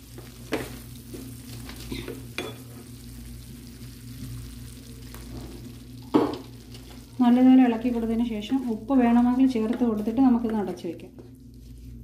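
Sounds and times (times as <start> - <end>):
spatula stirring in a pan: 0.0 - 7.2
curry sizzling: 0.0 - 12.0.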